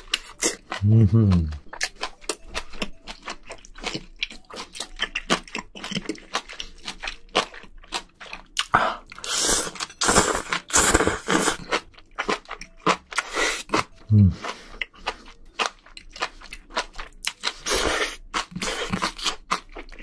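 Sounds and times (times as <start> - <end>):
wet chewing and lip-smacking: 0.0 - 20.0
slurping noodles: 8.9 - 11.7, 17.5 - 19.4.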